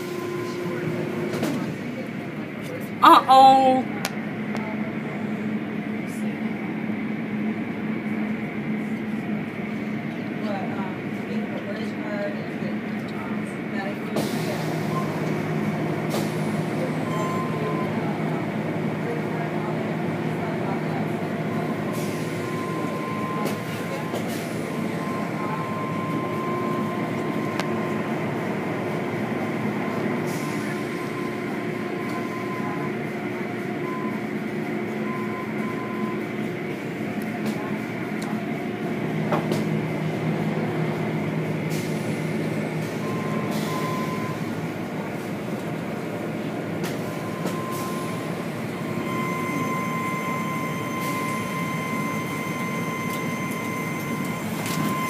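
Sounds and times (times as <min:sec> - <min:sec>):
car wash machinery running: 0:00.0 - 0:55.0.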